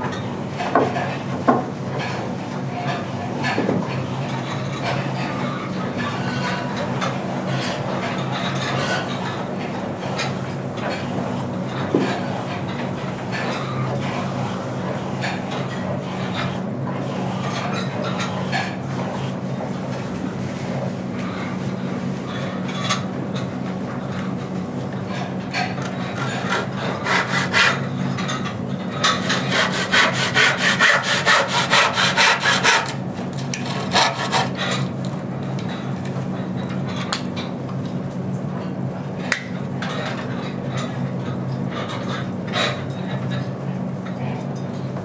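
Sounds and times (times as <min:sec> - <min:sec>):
saw cutting wood: 0:26.1 - 0:27.8, 0:29.2 - 0:33.0, 0:33.6 - 0:34.6.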